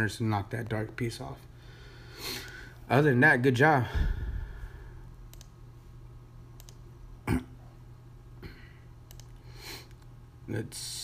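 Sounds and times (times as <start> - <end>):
low electrical hum: 0.0 - 11.0
person clearing throat: 7.2 - 7.7.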